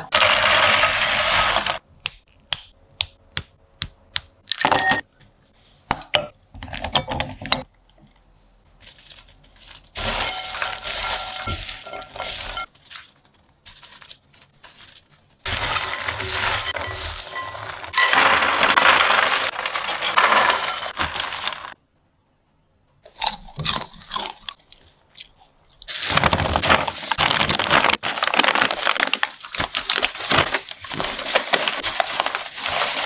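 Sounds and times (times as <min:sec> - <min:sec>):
popcorn stirred in glass bowl: 0:00.0 - 0:01.8, 0:09.9 - 0:12.8, 0:15.5 - 0:21.8, 0:29.8 - 0:33.0
popcorn tumbling into glass dish: 0:00.1 - 0:01.8, 0:09.9 - 0:12.7, 0:15.5 - 0:21.8.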